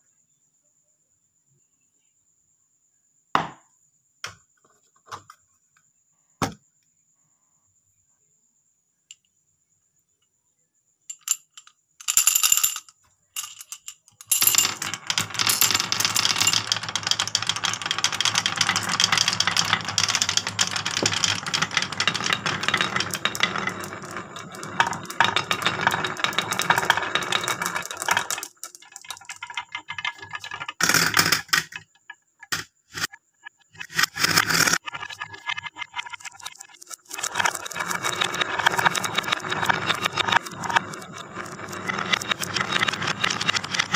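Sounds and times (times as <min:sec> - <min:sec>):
marbles rattling down wooden run: 0:11.1 - 0:43.9.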